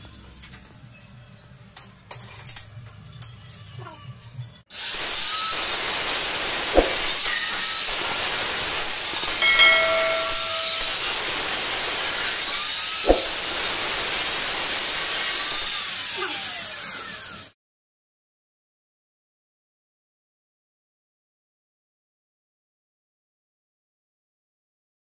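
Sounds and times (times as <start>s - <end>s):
angle grinder cutting metal: 4.7s - 17.5s
brief ringing tone: 9.4s - 11.3s.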